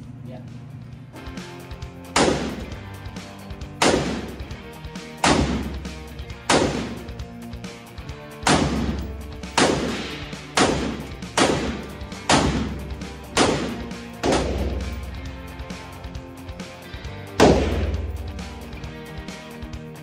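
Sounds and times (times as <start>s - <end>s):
background music: 0.0s - 20.0s
rifle shots ringing: 2.2s - 2.8s, 3.8s - 4.4s, 6.5s - 7.1s, 8.5s - 15.2s.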